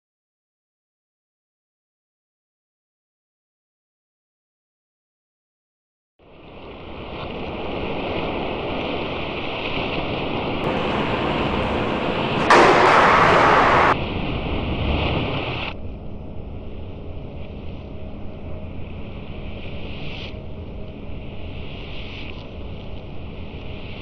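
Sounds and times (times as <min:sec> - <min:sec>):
steady rushing noise: 0:10.6 - 0:15.6.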